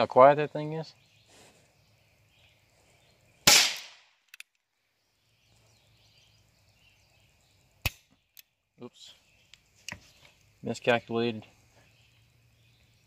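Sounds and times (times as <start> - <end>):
gunshot crack: 3.4 - 4.0.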